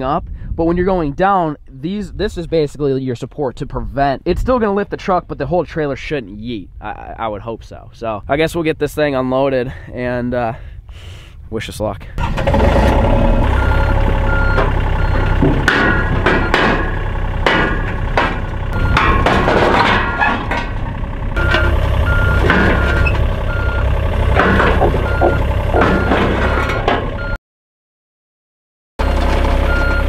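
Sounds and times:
metal clanks and bangs: 12.2 - 27.3
excavator diesel engine running: 12.2 - 27.4, 29.0 - 30.0
travel alarm beeping: 13.6 - 15.4, 18.7 - 19.1, 21.4 - 23.9, 25.0 - 27.4.

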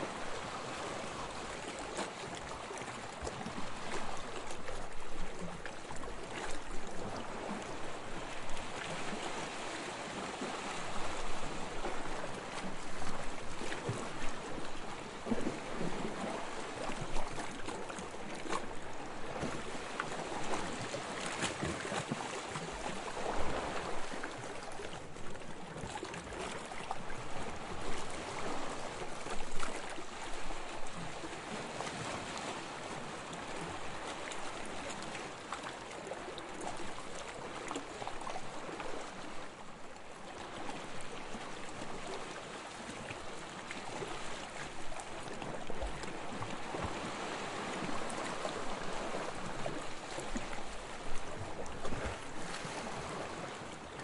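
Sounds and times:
sea waves washing in: 41.4 - 54.0.

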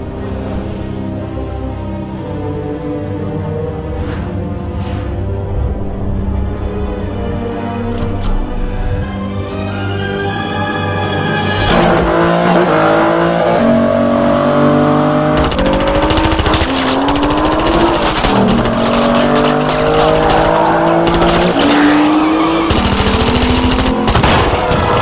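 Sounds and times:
car engines revving hard: 11.5 - 25.0.

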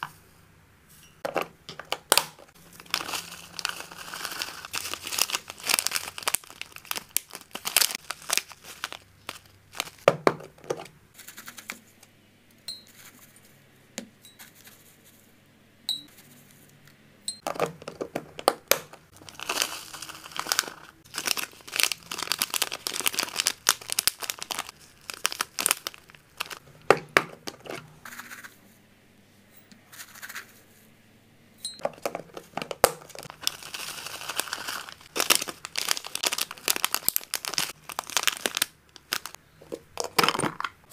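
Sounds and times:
plastic bag crinkling: 1.3 - 10.8, 17.5 - 27.8, 31.8 - 40.7
dry leaves rustling: 2.6 - 10.1, 19.1 - 26.6, 33.2 - 39.4.

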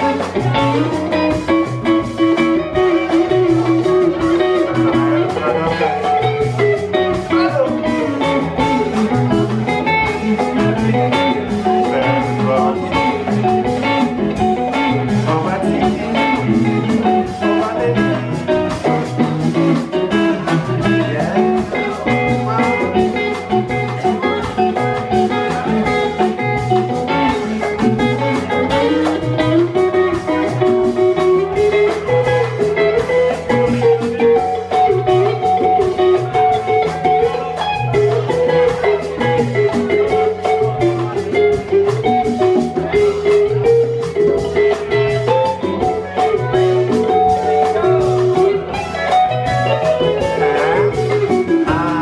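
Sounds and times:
electric guitar lines: 0.0 - 52.0
live band playing rumba: 0.0 - 52.0.

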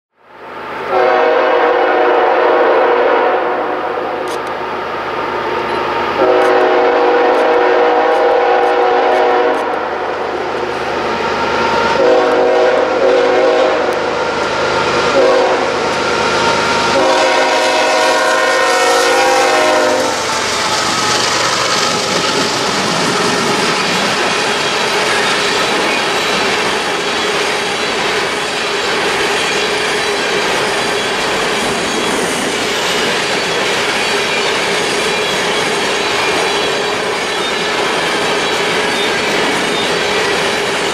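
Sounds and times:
locomotive air horn blasts: 0.9 - 4.3, 6.2 - 9.9, 11.9 - 14.0, 15.1 - 15.8, 16.9 - 20.5
locomotives passing close by: 14.0 - 28.2
train wheel clatter: 16.4 - 40.9.

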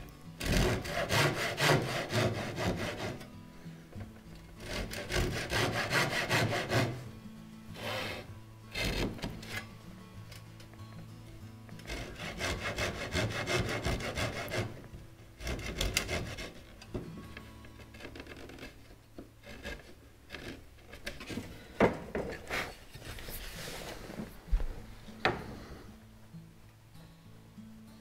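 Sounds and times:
chisel clicking and scraping wood: 0.4 - 3.3, 4.6 - 7.0, 8.7 - 9.6, 11.8 - 14.8, 15.4 - 21.4
saw cutting wood: 0.4 - 3.3, 4.6 - 7.0, 7.8 - 9.6, 11.8 - 14.8, 15.4 - 16.7, 19.4 - 21.2.

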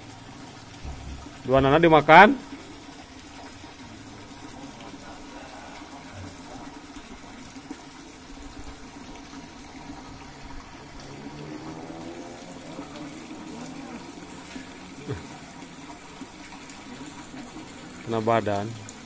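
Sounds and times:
water pouring: 0.0 - 19.0
faint voices: 4.1 - 7.0, 12.6 - 15.7.

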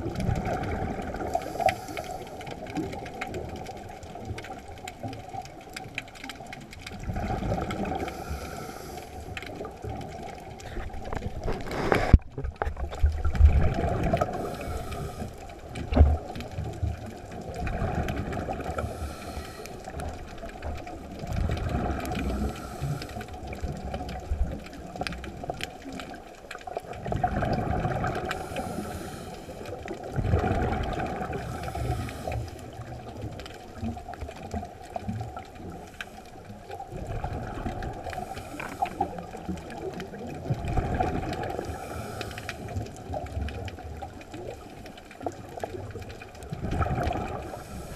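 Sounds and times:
exhaled bubbles: 0.0 - 47.9
diver breathing through regulator: 1.2 - 2.5, 7.9 - 9.6, 14.1 - 15.5, 18.6 - 20.0, 22.2 - 23.5, 28.3 - 29.8, 31.3 - 32.8, 38.1 - 39.3, 41.5 - 42.9, 47.2 - 47.9.

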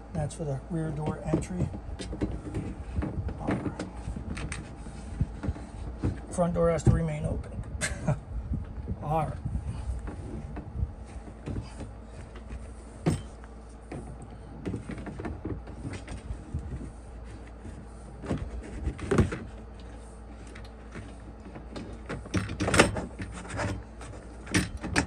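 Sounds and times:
plastic step knocking and rubbing: 1.0 - 7.2, 10.0 - 13.3, 13.9 - 25.0.

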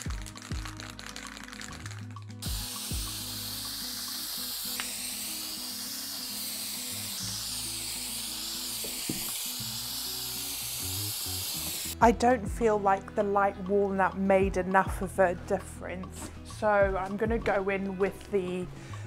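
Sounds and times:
aerosol can spraying: 0.0 - 12.0
background music: 0.0 - 19.0.

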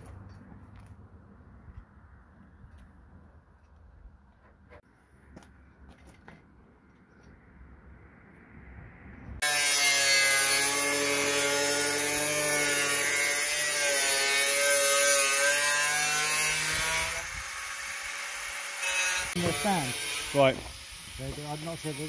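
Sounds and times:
power saw cutting metal: 9.4 - 22.0.

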